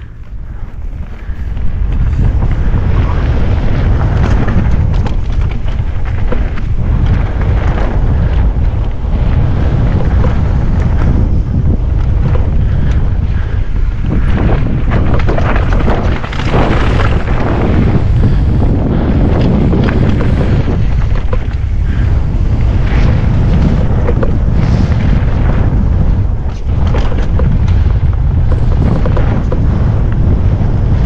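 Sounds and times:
bike knocks and rattles: 0.0 - 31.0
wind rush on microphone: 0.0 - 31.0.

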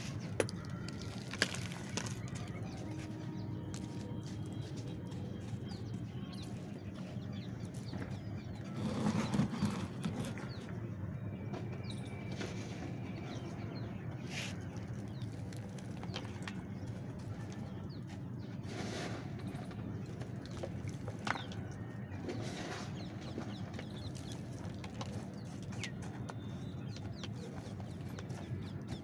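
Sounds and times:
hands crumbling gritty soil: 0.0 - 8.0, 14.4 - 17.7.

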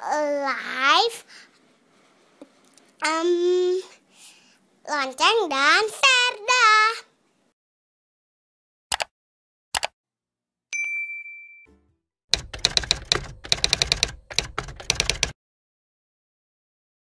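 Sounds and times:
typing clicks: 8.9 - 9.1, 12.3 - 15.4
short clicks: 9.8 - 10.0
bell-like ding: 10.7 - 12.0.

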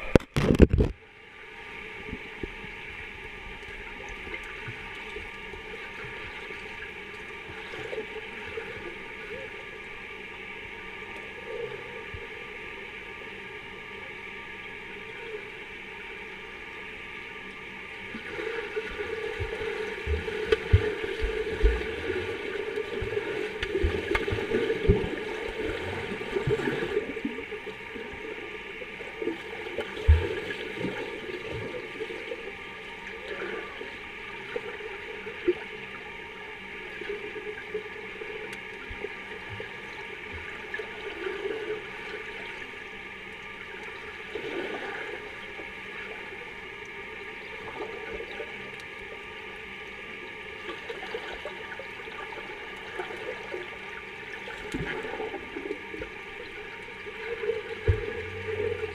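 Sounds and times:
underwater churning water and bubbles: 0.0 - 58.9
low underwater thumps: 19.3 - 22.1, 57.8 - 58.9.

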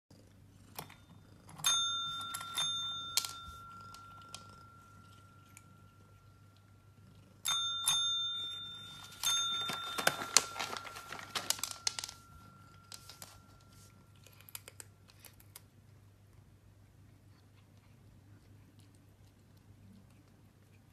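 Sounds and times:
service bell dings: 1.6 - 6.5, 7.5 - 13.7.

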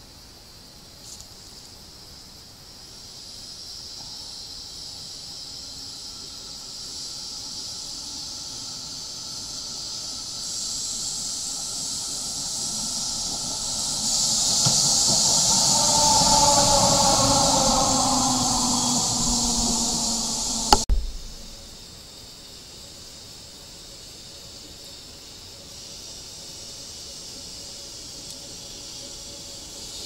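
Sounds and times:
tram running on rails: 4.0 - 21.8
multi-tone whine: 11.1 - 21.8
low rumble: 16.3 - 21.8.

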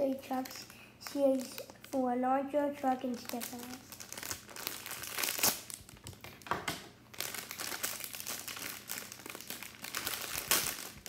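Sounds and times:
plastic wrapper crinkling: 0.0 - 11.0.

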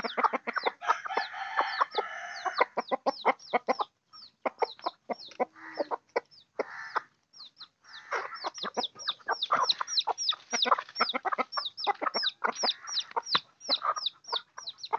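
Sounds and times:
chickens clucking: 0.0 - 14.9
chicks peeping: 0.0 - 14.9.

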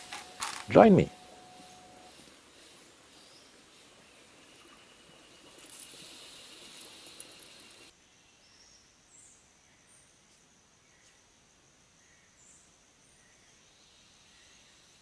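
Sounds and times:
high insect drone: 0.0 - 7.9
loud hiss: 5.7 - 7.9.

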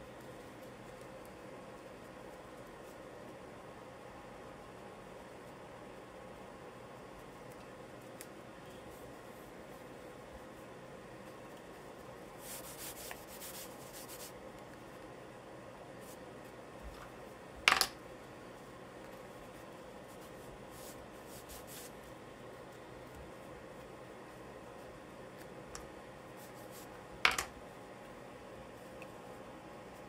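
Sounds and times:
charcoal scratching on paper: 12.4 - 14.4, 19.2 - 22.2.

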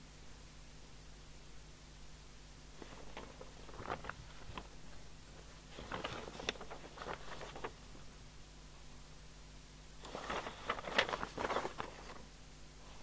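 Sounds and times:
paper sheets rustling: 2.8 - 8.1, 10.0 - 12.3.

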